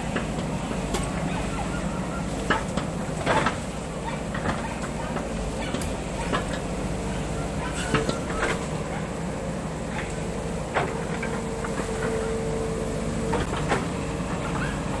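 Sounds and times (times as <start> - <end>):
excavator engine whining: 0.0 - 15.0.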